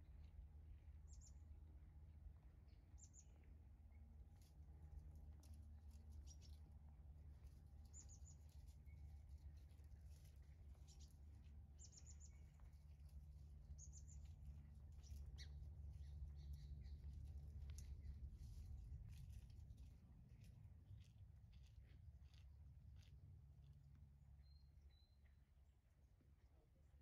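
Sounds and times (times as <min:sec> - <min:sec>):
steady low hum: 0:00.0 - 0:27.0
small bird chirping: 0:06.2 - 0:06.6, 0:07.9 - 0:11.2, 0:11.8 - 0:12.8, 0:13.7 - 0:18.6.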